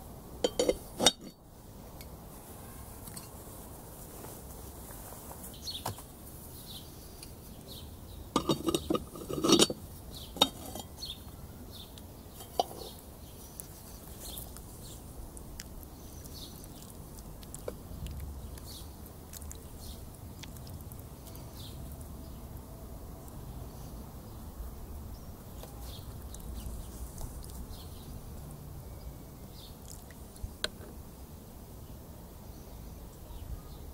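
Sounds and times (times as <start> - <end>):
birds chirping faintly: 0.0 - 33.9
metal pot lid clanking: 0.4 - 1.3, 8.4 - 9.8, 10.4 - 10.9, 12.4 - 12.9.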